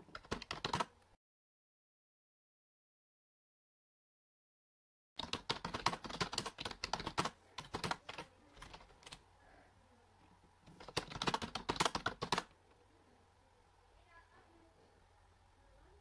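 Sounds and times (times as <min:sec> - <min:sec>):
fast typing on keyboard: 0:00.0 - 0:00.9, 0:05.2 - 0:09.2, 0:10.7 - 0:12.5.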